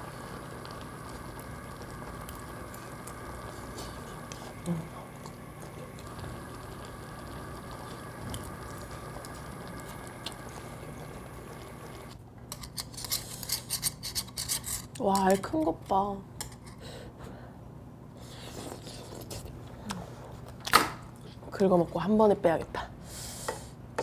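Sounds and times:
stew bubbling and hissing: 0.0 - 12.2.

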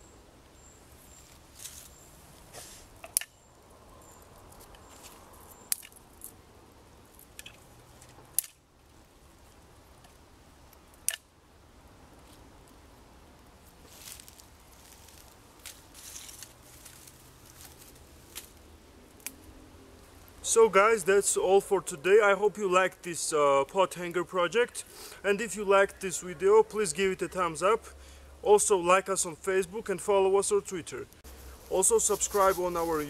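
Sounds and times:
hands rustling dry leaves: 4.1 - 6.4, 13.4 - 20.4, 31.2 - 33.0
twigs snapping: 7.2 - 8.6, 13.9 - 19.5.

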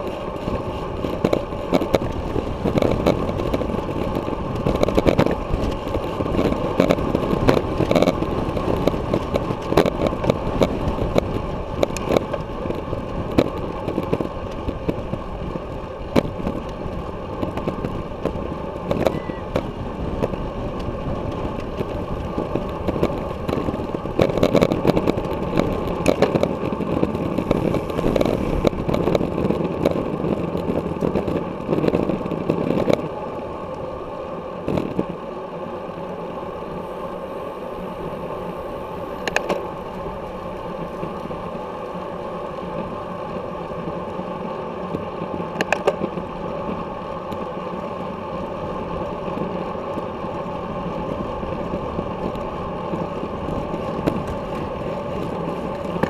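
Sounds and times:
wind rushing over microphone: 0.0 - 56.0
small clicks and rattles: 16.1 - 33.1.

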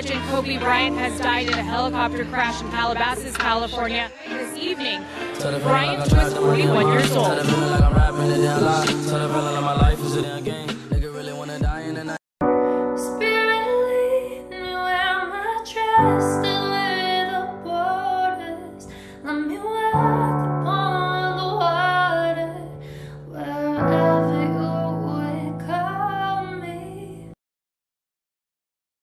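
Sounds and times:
woman singing: 0.0 - 10.3, 12.6 - 27.4
sustained chords: 0.0 - 11.2.

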